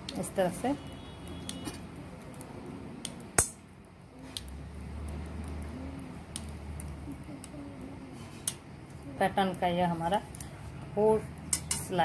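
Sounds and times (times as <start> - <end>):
knitting needles clicking: 6.3 - 7.6.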